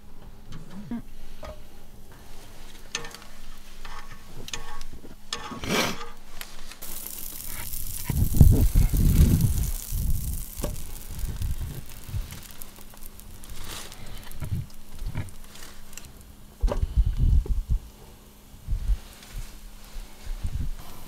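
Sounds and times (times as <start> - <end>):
butter sizzling in a frying pan: 6.8 - 16.6.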